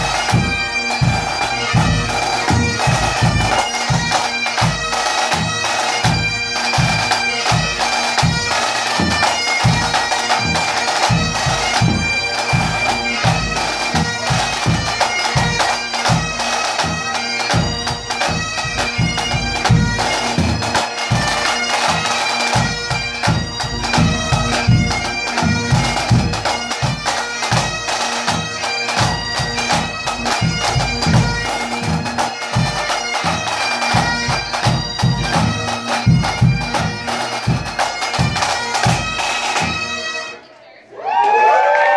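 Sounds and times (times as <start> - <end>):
bagpipes playing: 0.0 - 40.4
snare drums beating: 5.4 - 16.2.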